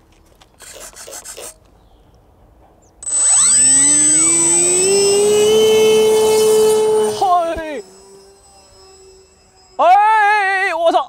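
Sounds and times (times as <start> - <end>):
model plane motor whine: 3.0 - 10.9.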